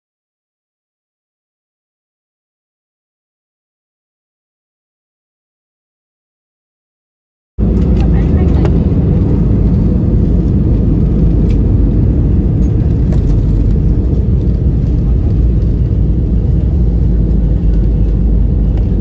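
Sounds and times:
airliner cabin roar during landing: 7.6 - 19.0
wheels running on runway: 7.6 - 19.0.

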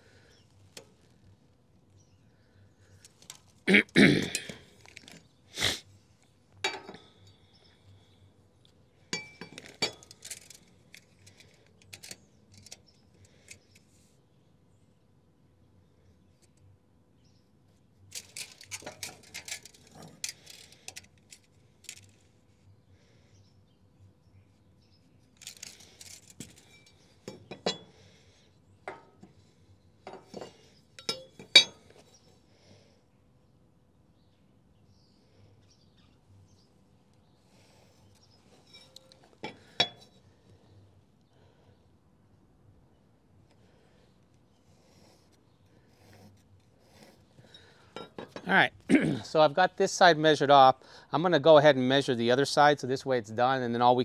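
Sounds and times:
metal tools clinking on wood: 6.6 - 7.2, 9.1 - 12.9, 18.1 - 22.2, 25.4 - 28.0, 28.9 - 29.3, 30.0 - 32.2, 38.2 - 40.2, 47.4 - 48.5
light metallic clinks: 9.1 - 12.9, 30.0 - 32.2, 38.2 - 40.2.

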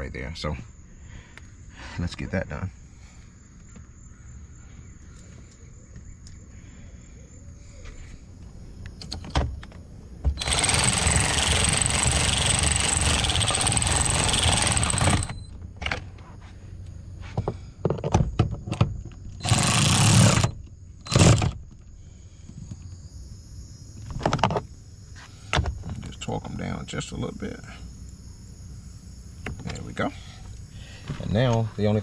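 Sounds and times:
power driver whirring: 10.3 - 15.5, 19.4 - 21.6.

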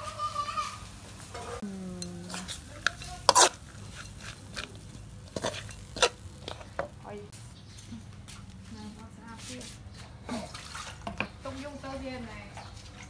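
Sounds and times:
metal spatula scraping a wok: 2.2 - 6.9.

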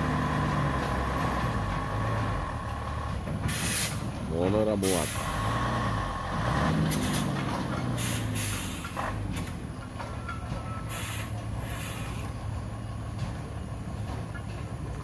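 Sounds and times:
diesel truck engine running: 0.0 - 15.0
hissing air bursts: 3.5 - 4.1, 8.0 - 9.0, 10.9 - 12.3.

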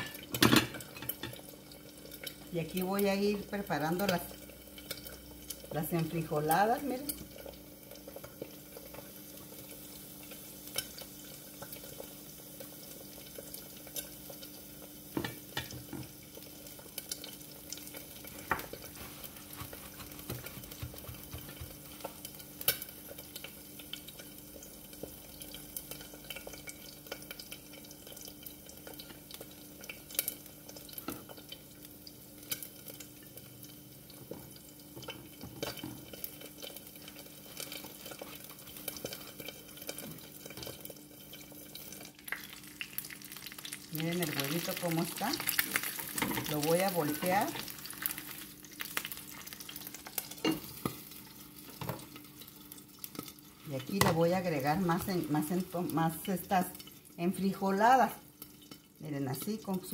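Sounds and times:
egg sizzling in oil: 0.0 - 59.9
tortillas handled on plates: 18.4 - 22.1
paper towel rustling: 18.9 - 20.8.

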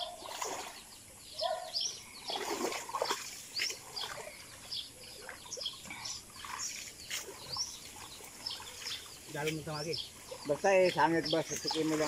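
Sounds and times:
muddy water splashing: 0.0 - 12.0
small birds chirping: 0.0 - 12.0.

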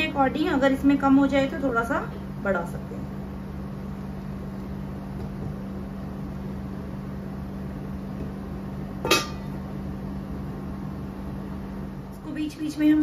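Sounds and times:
steady low hum: 0.0 - 13.0
metal lid clanking on a pan: 9.0 - 9.5.

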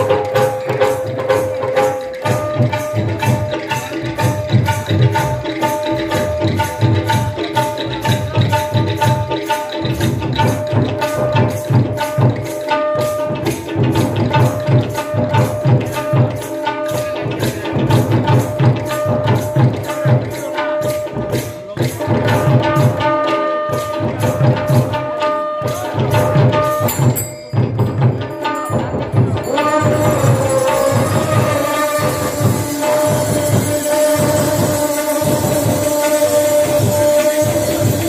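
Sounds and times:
hand drums in quick rhythm: 0.0 - 38.0
small hand cymbals striking: 0.0 - 38.0
held melodic note: 22.4 - 38.0.

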